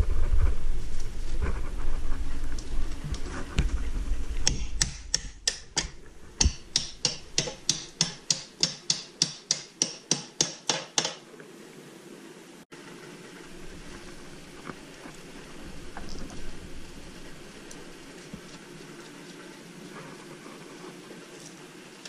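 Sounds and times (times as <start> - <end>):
low rumbling handling noise: 0.0 - 7.7.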